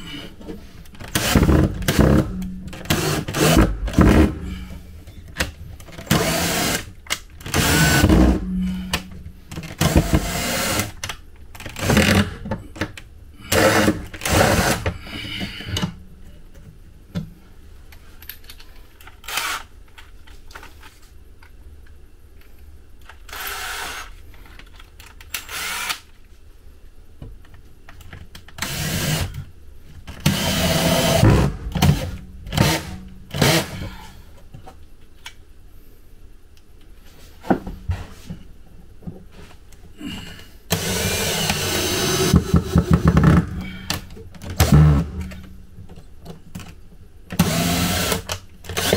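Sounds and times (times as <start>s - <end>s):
cordless drill driving screws: 7.5s - 8.3s, 19.2s - 19.6s, 23.3s - 24.1s, 25.4s - 26.0s, 40.7s - 42.4s, 47.4s - 48.9s.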